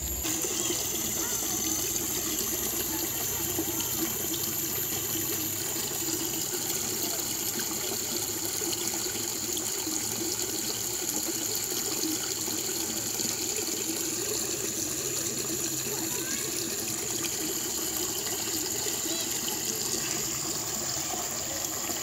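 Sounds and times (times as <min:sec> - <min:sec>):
steady high-pitched tone: 0:00.0 - 0:08.2
water splashing into a pool: 0:00.2 - 0:22.0.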